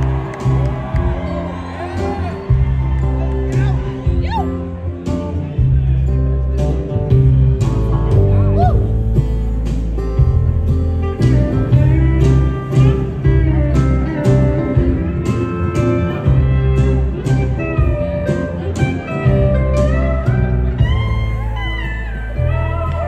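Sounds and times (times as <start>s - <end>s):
acoustic guitar: 0.0s - 23.0s
pedal steel guitar solo: 11.0s - 23.0s.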